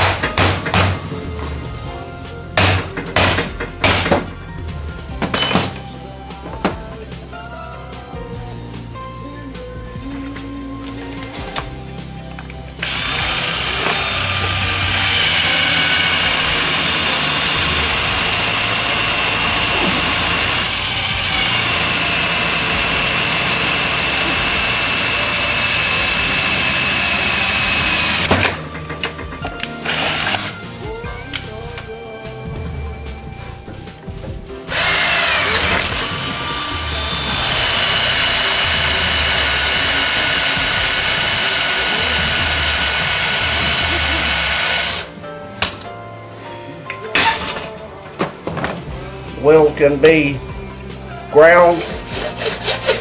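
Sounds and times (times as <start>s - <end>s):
power drill boring into metal: 12.7s - 31.6s, 34.7s - 45.2s, 47.1s - 47.8s, 51.3s - 53.0s.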